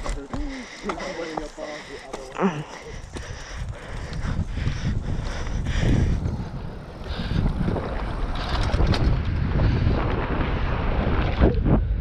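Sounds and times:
bike tyres on dirt trail: 0.0s - 12.0s
wind buffeting microphone: 2.8s - 12.0s
bike rattling over bumps: 2.9s - 12.0s.

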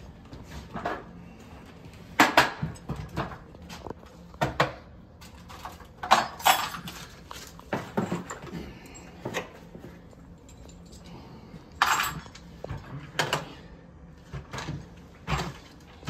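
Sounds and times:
metal hardware and tools clanking: 5.2s - 9.6s, 10.3s - 13.5s.

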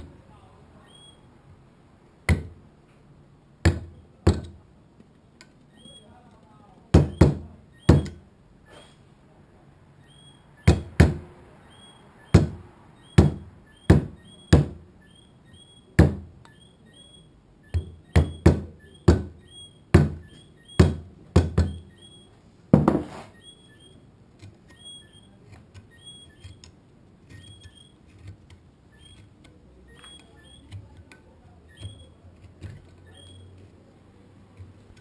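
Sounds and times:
mallet striking carving gouge: 2.2s - 2.6s, 3.6s - 4.6s.

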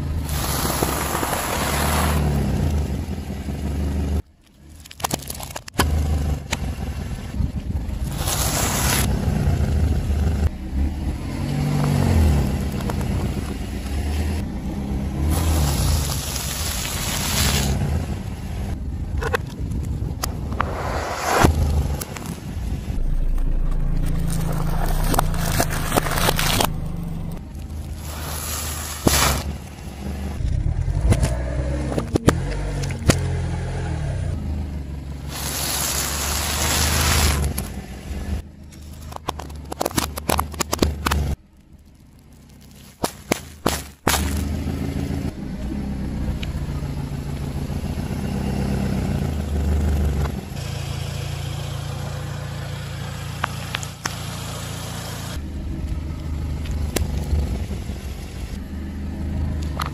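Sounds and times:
tyre crunching objects: 19.5s - 29.8s, 38.6s - 44.6s
car engine running slowly: 44.3s - 59.9s.

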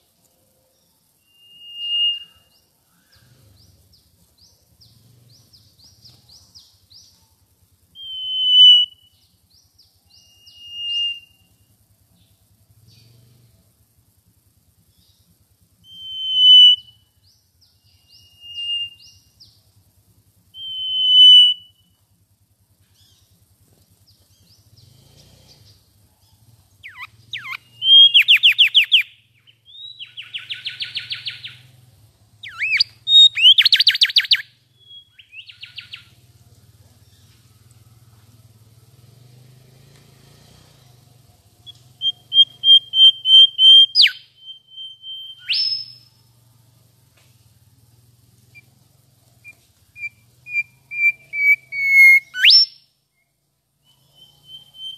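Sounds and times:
bird whistling and trilling: 1.2s - 2.6s, 8.0s - 9.1s, 10.1s - 11.4s, 15.9s - 17.0s, 18.0s - 19.2s, 20.6s - 21.8s, 26.8s - 31.6s, 32.4s - 36.1s, 41.7s - 46.1s, 49.4s - 52.9s, 53.8s - 54.9s.

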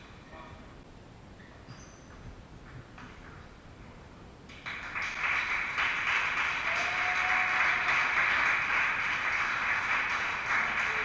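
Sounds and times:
spectators applauding: 4.6s - 11.0s.

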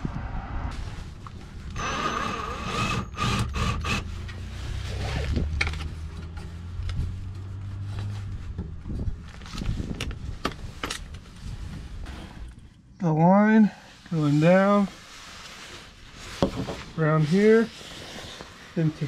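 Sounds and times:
cordless drill driving screws: 1.8s - 4.1s.

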